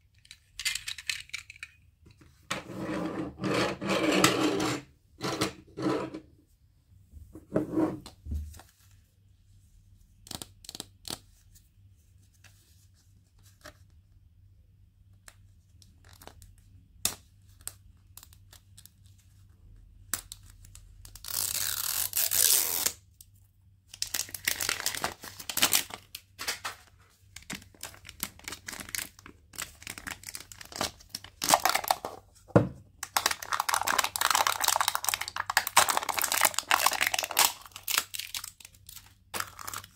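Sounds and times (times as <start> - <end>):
packaging tearing: 21.2 - 23.0, 24.0 - 26.7, 27.7 - 32.0, 33.0 - 39.9
wrapper crinkling: 24.0 - 32.2, 33.0 - 39.9.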